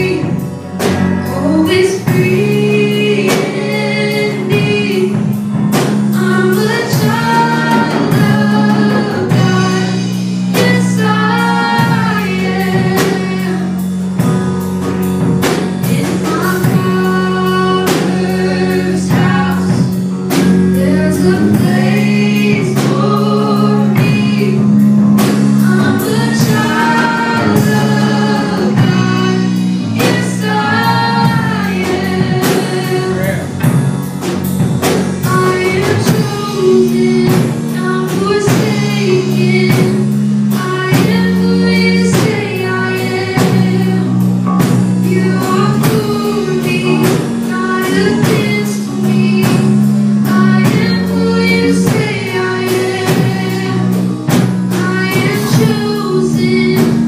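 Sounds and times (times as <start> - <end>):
voices singing along: 0.0 - 14.5, 15.4 - 57.0
acoustic guitar: 0.0 - 57.0
lead singer: 0.0 - 57.0
sustained keyboard chords: 0.0 - 57.0.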